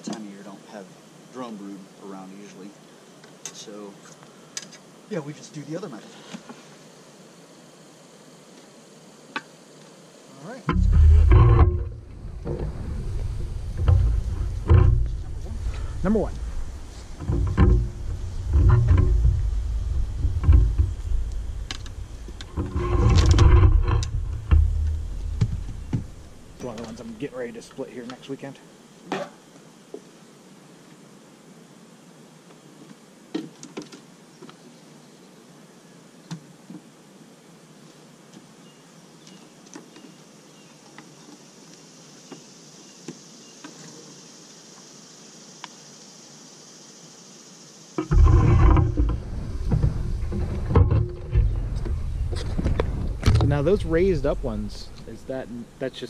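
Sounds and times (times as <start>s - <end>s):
high steady hiss: 0.0s - 56.0s
honeybees buzzing: 0.1s - 56.0s
microphone handling: 10.7s - 27.2s, 48.0s - 55.6s
sharp clicks and knocks: 10.7s - 27.2s, 48.0s - 55.1s
wind rumble: 10.7s - 27.4s, 48.0s - 55.8s.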